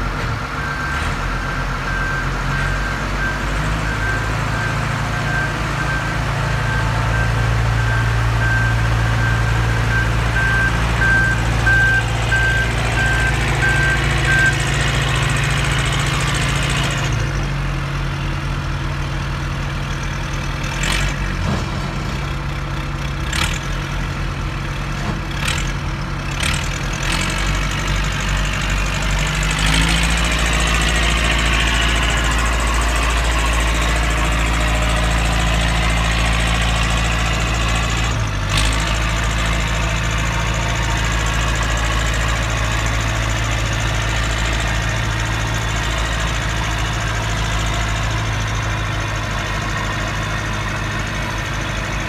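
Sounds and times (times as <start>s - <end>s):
diesel engine idling: 0.0s - 21.0s, 22.2s - 52.0s.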